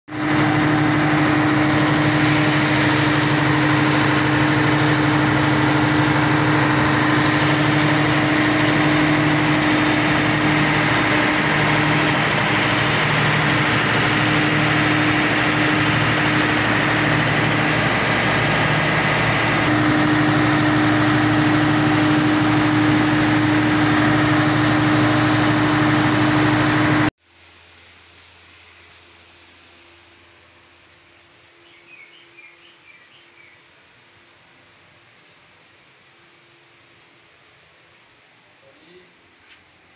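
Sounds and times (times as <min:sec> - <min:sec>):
diesel engine running loud: 0:00.1 - 0:27.1.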